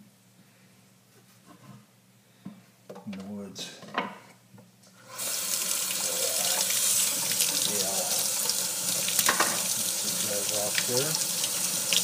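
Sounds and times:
water running into a metal sink: 0:05.1 - 0:12.0.

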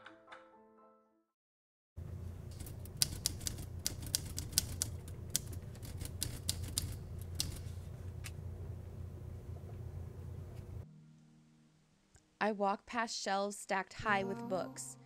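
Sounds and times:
steady low hum: 0:02.0 - 0:12.0
typewriter keys clacking: 0:02.5 - 0:07.7.

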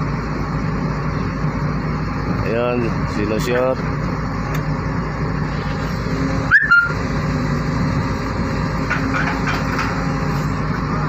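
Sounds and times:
diesel engine running: 0:00.0 - 0:11.0
short high squeal: 0:06.5 - 0:07.0.

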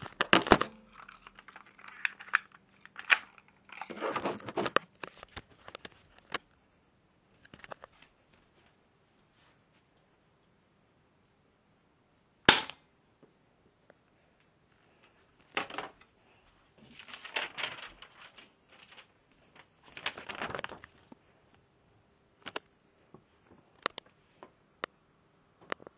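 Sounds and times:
rustling handling noise: 0:00.0 - 0:06.5, 0:14.4 - 0:21.7
gun shot crack: 0:12.5 - 0:12.8.

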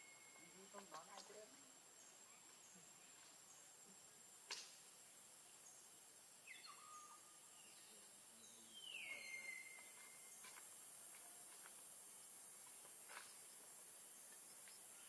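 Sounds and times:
faint high whistled calls: 0:00.0 - 0:01.3, 0:06.4 - 0:10.5
faint outdoor hiss: 0:00.0 - 0:15.0.

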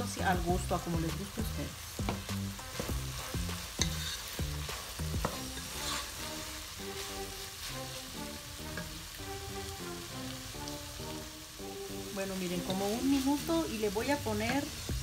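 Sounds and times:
meat sizzling in a pot: 0:00.0 - 0:15.0
spatula scraping and knocking pot: 0:02.0 - 0:06.1.

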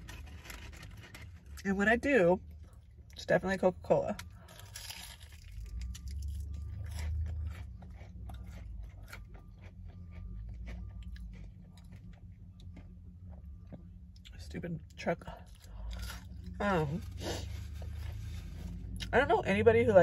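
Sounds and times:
truck engine rumble: 0:00.0 - 0:20.0
person chewing food: 0:04.2 - 0:14.4, 0:15.4 - 0:19.1.

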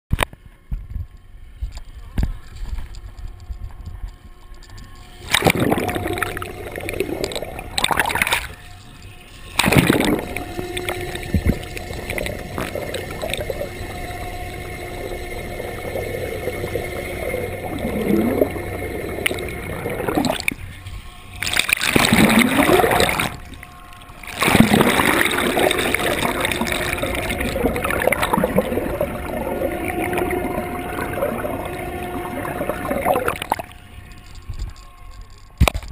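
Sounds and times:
faint steady hum: 0:00.2 - 0:35.9
water splashing and gurgling: 0:04.7 - 0:35.9.

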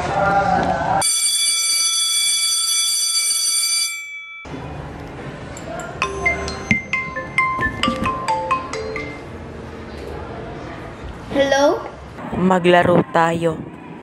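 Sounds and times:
marimba-style phone ringtone: 0:01.0 - 0:04.5, 0:06.0 - 0:09.4
high electronic tone: 0:06.0 - 0:09.4.

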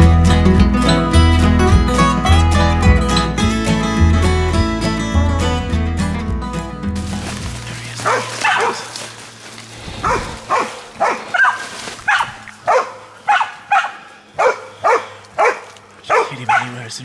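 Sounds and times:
dog barking: 0:08.0 - 0:09.0, 0:10.0 - 0:16.9.

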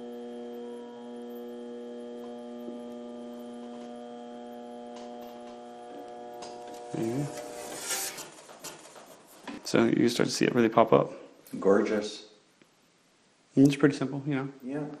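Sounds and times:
bead roller motor humming: 0:00.0 - 0:09.5
roller pressing metal sheet: 0:07.0 - 0:09.4.

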